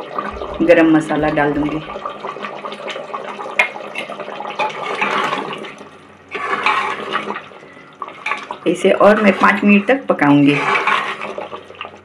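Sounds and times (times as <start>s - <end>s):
gravy bubbling in pot: 0.0s - 12.0s
ladle stirring and scraping: 3.9s - 12.0s.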